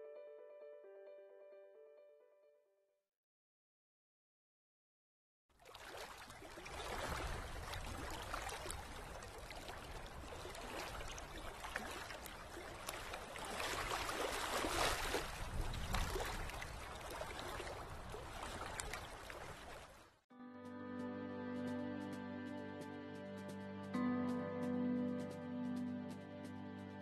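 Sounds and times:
water drips: 0:05.6 - 0:20.0.

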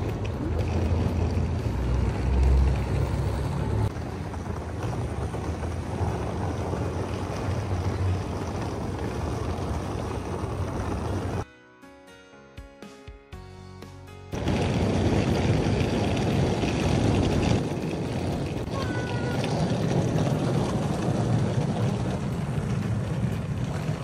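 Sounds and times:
wind buffeting microphone: 0:14.4 - 0:24.0.

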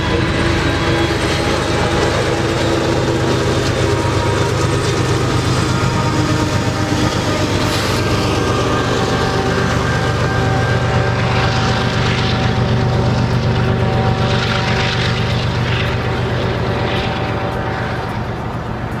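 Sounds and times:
diesel locomotive engines droning: 0:00.0 - 0:19.0
train wheels on rails: 0:00.0 - 0:19.0.

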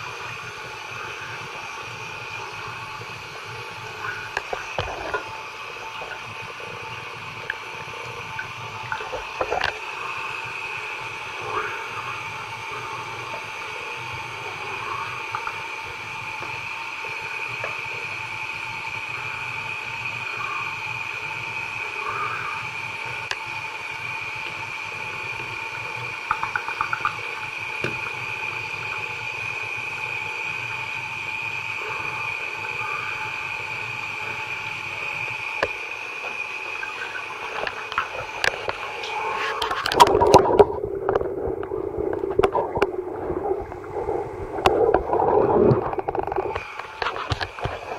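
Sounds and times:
muffled underwater gurgling: 0:00.0 - 0:47.9
water running into bathtub: 0:00.0 - 0:47.9
water splashing and sloshing: 0:03.9 - 0:17.9, 0:25.6 - 0:29.2, 0:35.6 - 0:47.9.

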